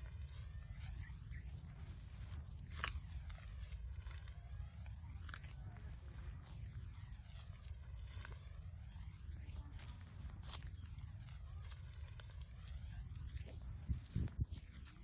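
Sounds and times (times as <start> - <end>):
footsteps crunching on dry grass: 0.0 - 15.0
low microphone rumble: 0.0 - 15.0
twigs snapping: 2.1 - 6.6.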